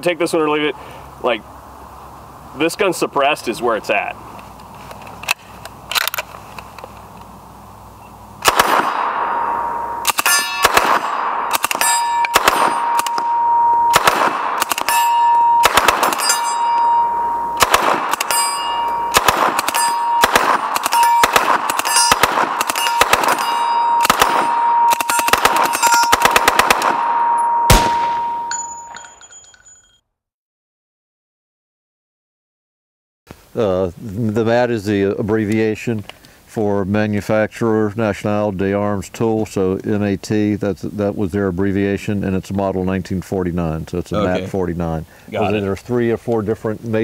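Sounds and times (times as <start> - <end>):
suppressed gunfire bursts: 8.4 - 9.3, 10.0 - 13.3, 13.9 - 15.0, 15.6 - 16.3, 17.6 - 18.4, 19.1 - 28.4
high ringing tone: 9.1 - 14.0, 14.8 - 17.6, 18.2 - 30.0.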